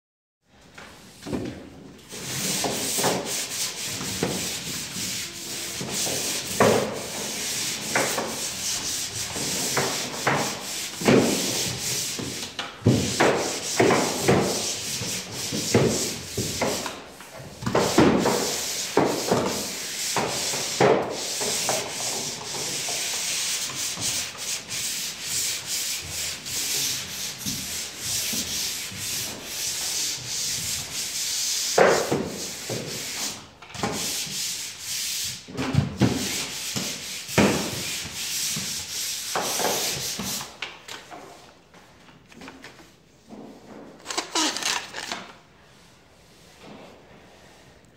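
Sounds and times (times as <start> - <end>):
sanding pad rasping on drywall: 2.1 - 40.6.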